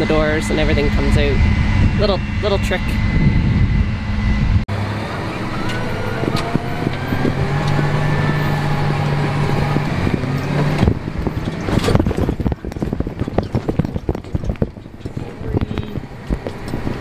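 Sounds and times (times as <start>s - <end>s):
tractor engine drone: 0.0s - 17.0s
tractor and cart rattling: 4.7s - 17.0s.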